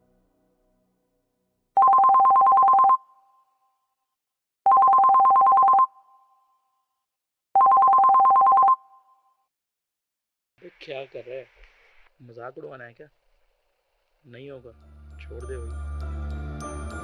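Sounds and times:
phone ringing two-tone warble: 0:01.8 - 0:03.0, 0:04.7 - 0:06.1, 0:07.6 - 0:09.0.

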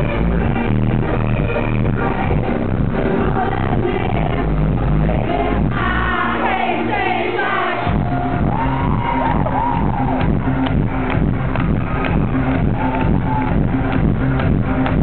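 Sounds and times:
live band playing dance music: 0:07.5 - 0:15.0.

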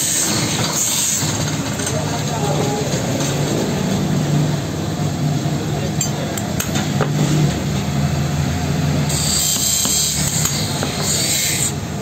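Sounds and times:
steady workshop hum: 0:00.0 - 0:12.0.

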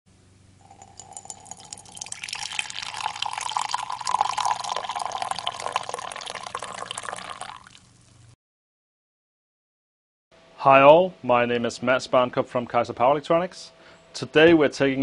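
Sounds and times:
coffee pouring into a ceramic mug: 0:00.6 - 0:08.0.

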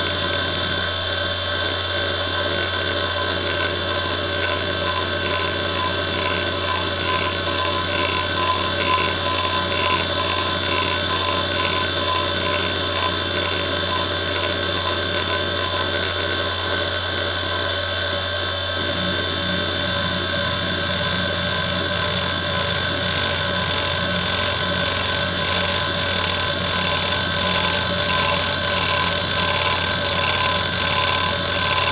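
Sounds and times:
spinning platters hum: 0:00.0 - 0:31.9
hard drive head chatter: 0:22.1 - 0:31.9.

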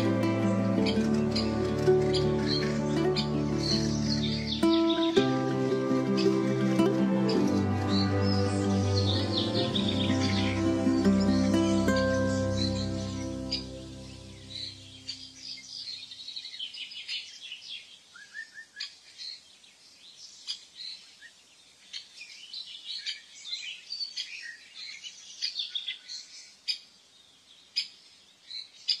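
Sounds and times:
birds chirping and trilling: 0:00.0 - 0:29.0.

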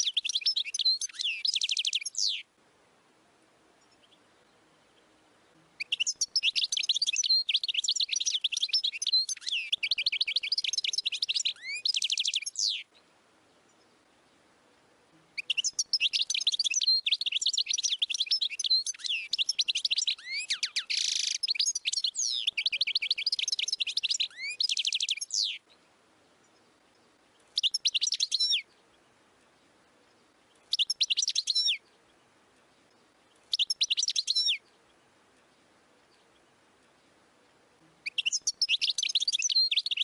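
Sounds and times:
goldfinch twittering song: 0:00.0 - 0:02.5, 0:05.8 - 0:13.0, 0:15.4 - 0:37.2, 0:38.0 - 0:40.0.

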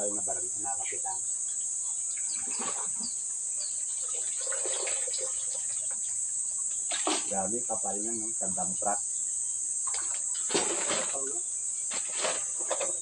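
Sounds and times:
insects chorus: 0:00.0 - 0:13.0
bird chirps: 0:01.0 - 0:04.3
rubbish rustling: 0:10.4 - 0:13.0.

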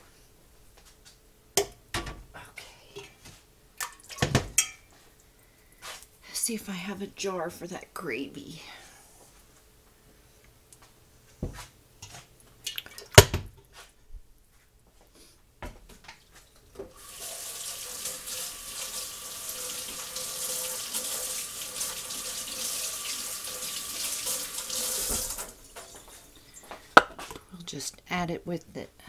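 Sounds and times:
tap water running into sink: 0:16.9 - 0:25.9.

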